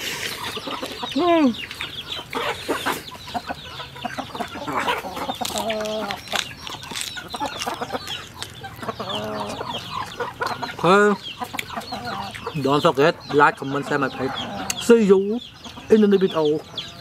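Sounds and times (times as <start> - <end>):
chickens clucking: 0.0 - 17.0
chewing and crunching lettuce: 4.4 - 10.7.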